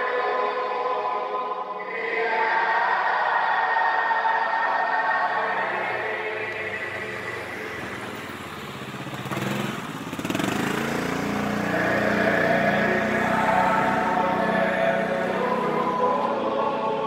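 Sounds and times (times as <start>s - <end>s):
choral singing: 0.0s - 8.6s, 10.3s - 17.0s
vehicle engine passing: 5.3s - 17.0s.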